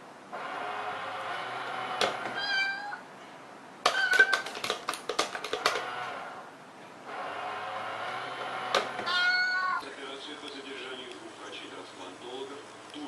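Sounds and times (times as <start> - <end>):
toy cat meow: 2.4 - 3.0, 3.9 - 4.7, 9.0 - 9.8
taps and clicks on box lid: 3.8 - 5.9.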